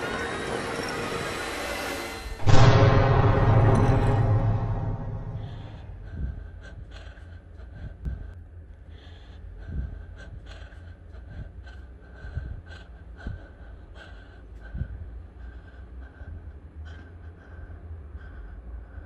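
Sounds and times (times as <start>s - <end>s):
low rumble: 2.3s - 8.3s.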